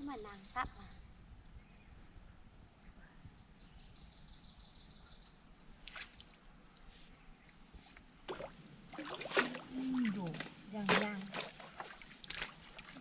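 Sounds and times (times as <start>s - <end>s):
water sloshing: 8.2s - 13.0s.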